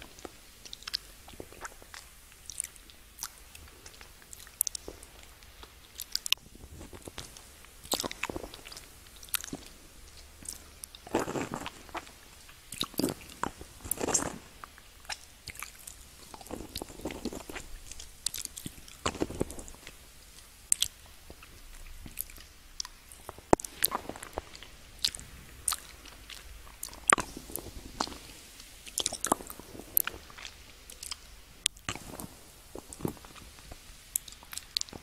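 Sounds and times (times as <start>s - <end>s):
crunching candy: 0.0s - 35.0s
hard candy cracking: 0.2s - 20.0s.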